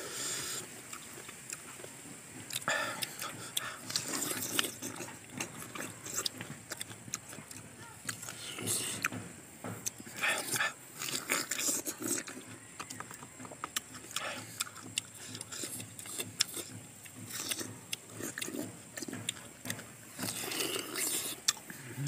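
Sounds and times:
people chewing crisp fruit: 0.0 - 22.0.

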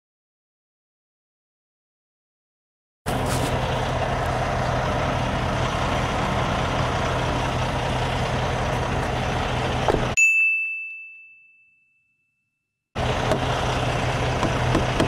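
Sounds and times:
diesel truck engine idling: 3.1 - 10.2, 13.0 - 15.0.

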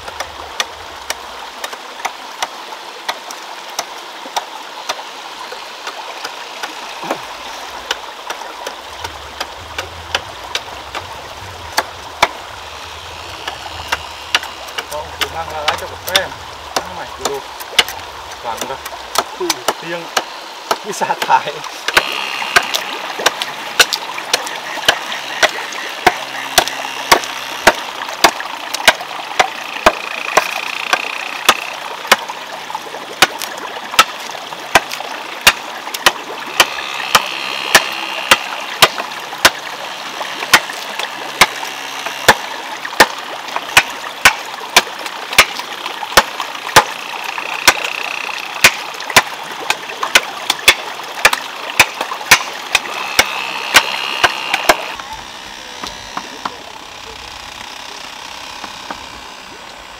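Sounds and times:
water splashing: 0.0 - 59.9
wooden clacks: 13.1 - 32.2, 46.2 - 55.0.

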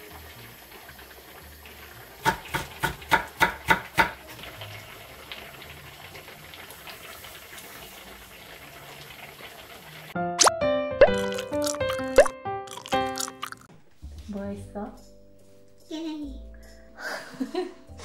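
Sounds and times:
stew bubbling in a pot: 11.0 - 13.6.

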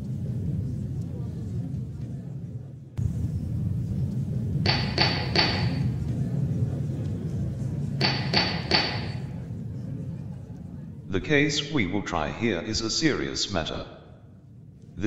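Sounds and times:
steady low rumble: 0.0 - 15.0
gavel knocking: 8.0 - 9.2.

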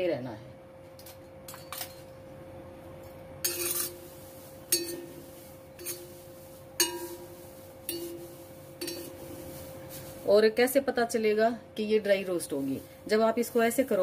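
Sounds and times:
spatula scraping dry leaves in pan: 3.4 - 11.1, 12.1 - 14.0.

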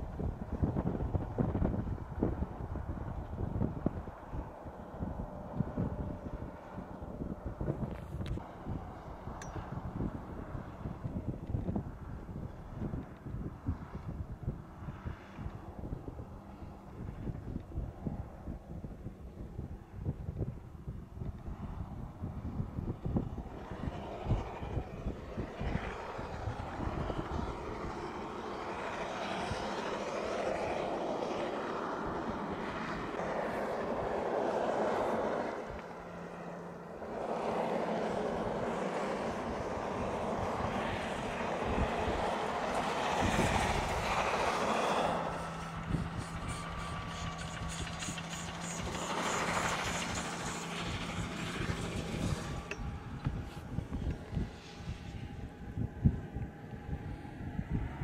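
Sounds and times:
snow blower roaring: 21.6 - 57.3.

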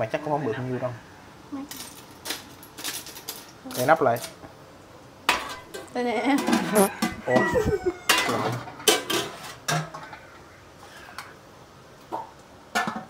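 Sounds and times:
cooking pot and utensils clattering: 5.3 - 10.4, 12.8 - 13.0.

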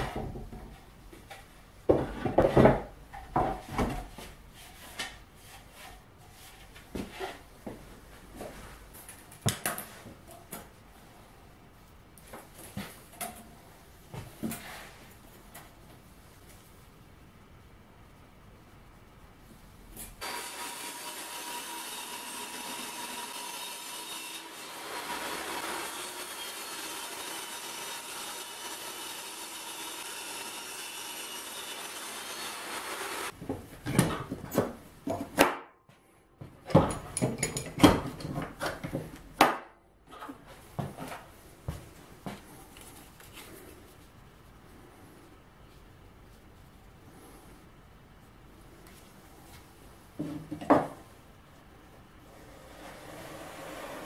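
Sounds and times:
loud irregular knocks and scrapes: 1.9 - 7.5
table saw cutting plywood: 20.2 - 33.3, 52.4 - 54.0.

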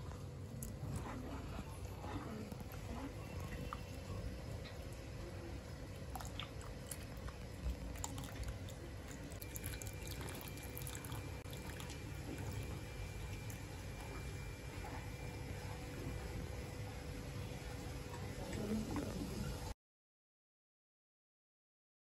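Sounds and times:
liquid sloshing and dripping: 2.3 - 16.3.

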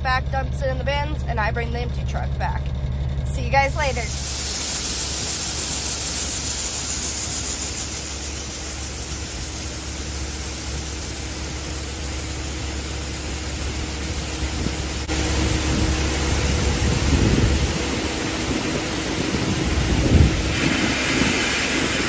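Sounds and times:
heavy engine running: 0.0 - 22.0
steady hum: 0.0 - 22.0
rushing noise: 3.8 - 11.4, 14.9 - 22.0.

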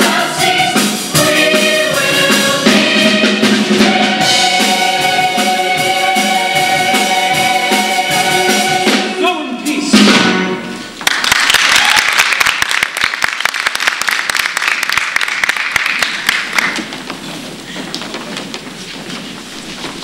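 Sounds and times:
choir holding a chord with accompaniment: 0.0 - 9.2
audience applause: 11.0 - 17.0.

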